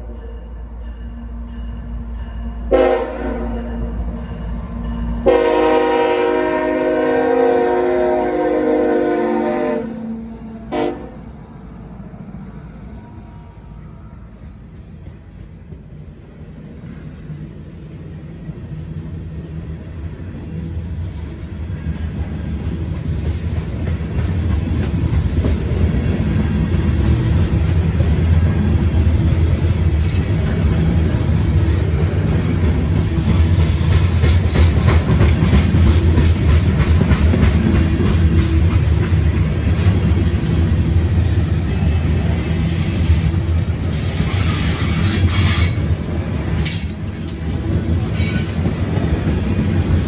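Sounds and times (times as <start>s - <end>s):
train wheels rumbling on rails: 0.0s - 50.0s
train wheel clicks: 22.6s - 40.3s, 46.4s - 50.0s.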